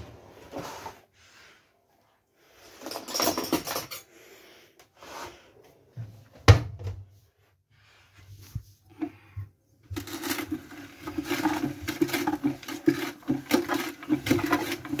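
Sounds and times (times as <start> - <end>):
household rustling and clattering: 2.5 - 4.2, 4.9 - 15.0.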